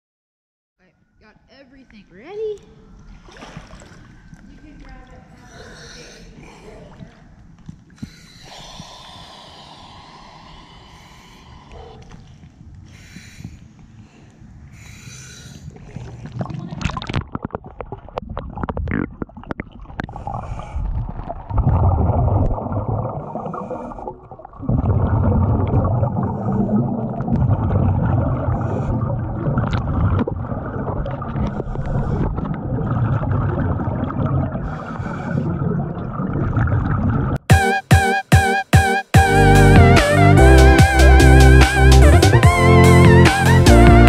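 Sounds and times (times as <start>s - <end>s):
splashes and knocks: 3.2s - 5.3s
exhaled bubbles gurgling underwater: 15.7s - 37.4s.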